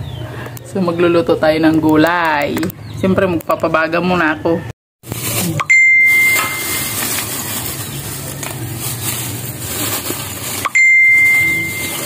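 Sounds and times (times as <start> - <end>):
plastic bag crinkling: 5.0 - 12.0
chime-like ding: 5.6 - 7.0, 10.7 - 12.0.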